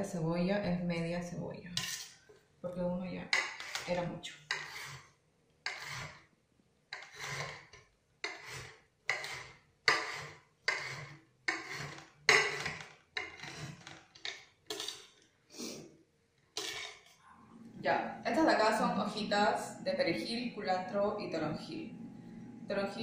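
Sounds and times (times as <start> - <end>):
knife cutting on cutting board: 4.5 - 5.1, 5.7 - 6.2, 7.0 - 13.8.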